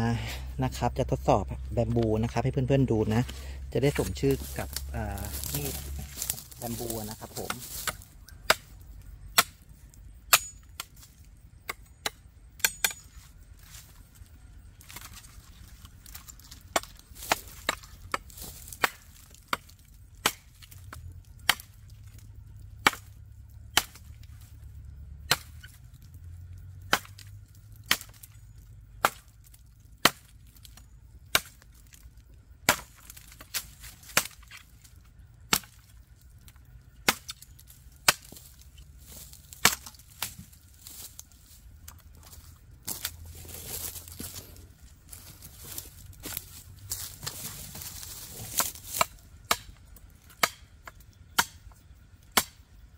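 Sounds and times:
knife chopping bamboo: 0:01.9 - 0:09.6, 0:10.3 - 0:13.0, 0:16.4 - 0:21.8, 0:22.7 - 0:24.1, 0:25.2 - 0:25.8, 0:26.8 - 0:29.4, 0:30.0 - 0:31.6, 0:32.6 - 0:34.6, 0:35.5 - 0:35.9, 0:37.0 - 0:38.5, 0:39.2 - 0:41.3, 0:45.2 - 0:52.6.

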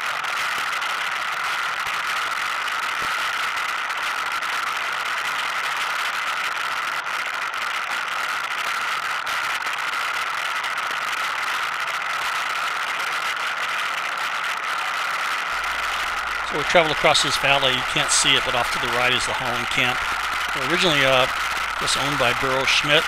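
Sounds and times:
atv engine running: 0:15.5 - 0:23.0.

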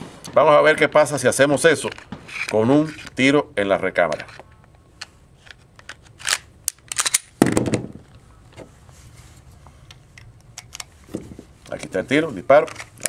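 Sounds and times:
pistol parts clicking: 0:04.0 - 0:08.2, 0:09.8 - 0:10.9, 0:11.6 - 0:13.0
pistol knocking on wooden bench: 0:07.4 - 0:08.0.

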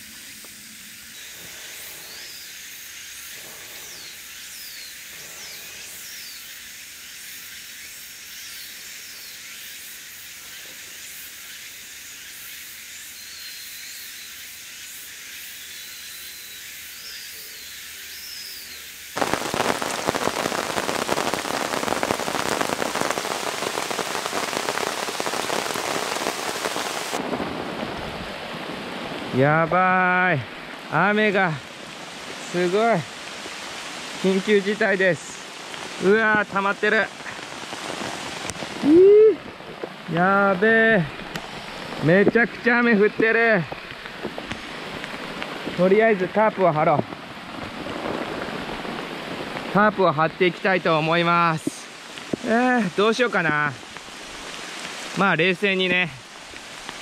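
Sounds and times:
heavy rain pouring: 0:19.1 - 0:57.0.

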